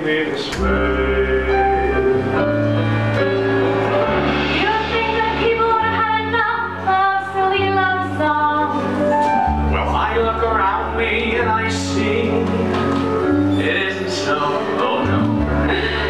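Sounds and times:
held bass notes: 0.0 - 16.0
instrumental accompaniment: 0.5 - 16.0
woman singing: 4.6 - 9.0.

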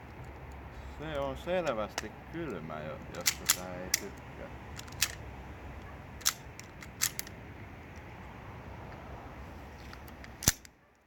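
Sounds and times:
pistol crack: 3.2 - 4.2, 4.8 - 5.2, 6.2 - 7.3, 10.3 - 10.8
airsoft pistol clicks: 10.0 - 10.8.

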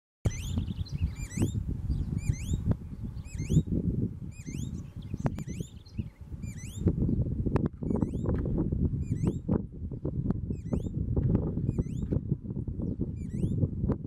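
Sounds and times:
bird whistled song: 0.3 - 7.1, 7.9 - 8.3, 9.0 - 9.5, 10.5 - 11.0, 11.7 - 12.1, 12.8 - 13.6.

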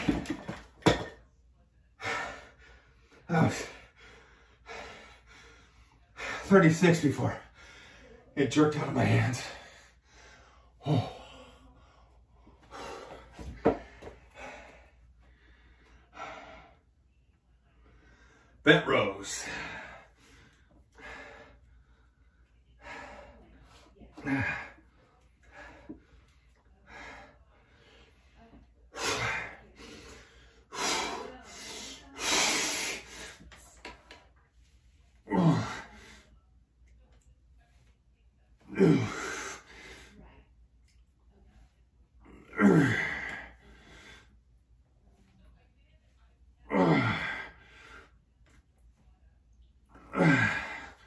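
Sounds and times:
man breathing heavily: 1.9 - 17.0, 17.8 - 33.6, 34.8 - 36.4, 38.6 - 40.2, 42.2 - 44.4, 46.7 - 48.2, 49.9 - 51.0
man grunting: 24.2 - 24.8, 35.3 - 35.9, 38.7 - 39.4, 42.3 - 43.4, 46.7 - 47.5, 50.0 - 51.0.

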